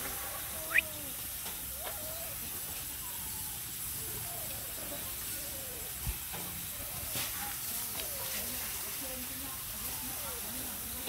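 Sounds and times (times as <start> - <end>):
background hiss: 0.0 - 11.0
faint whining calls: 0.2 - 8.6.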